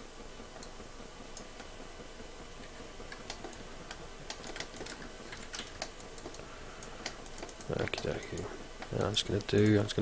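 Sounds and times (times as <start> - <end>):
keyboard and mouse clicks: 3.1 - 9.8.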